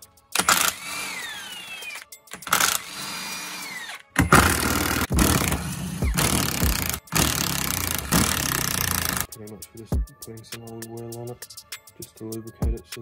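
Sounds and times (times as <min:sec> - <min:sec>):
impact wrench whining: 0:00.4 - 0:09.3.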